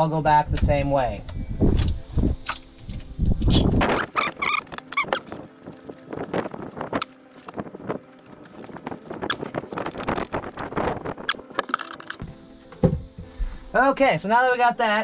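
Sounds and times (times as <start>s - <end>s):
brief squeak: 3.5s - 5.4s
hand tools clinking and knocking: 3.8s - 12.2s.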